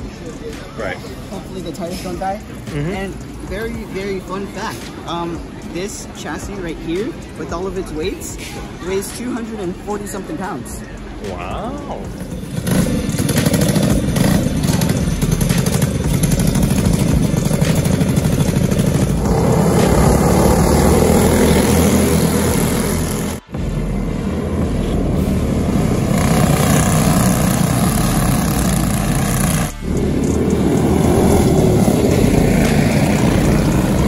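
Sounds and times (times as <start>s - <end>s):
kart engines revving: 12.1s - 34.0s.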